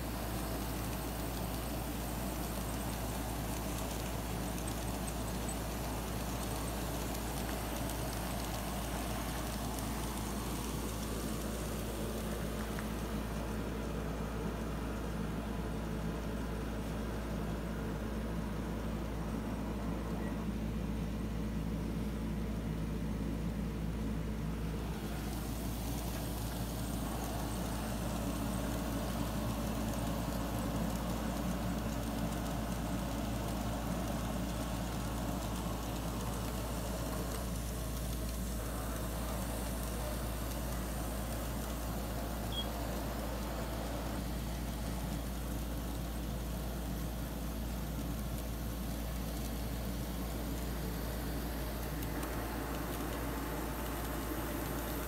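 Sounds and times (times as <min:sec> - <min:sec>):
bright hiss: 0:00.0 - 0:15.3, 0:24.0 - 0:55.0
low mechanical hum: 0:00.0 - 0:55.0.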